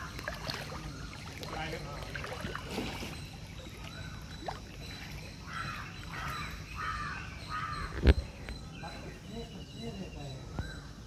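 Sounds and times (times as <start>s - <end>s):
crow cawing: 5.4s - 8.0s.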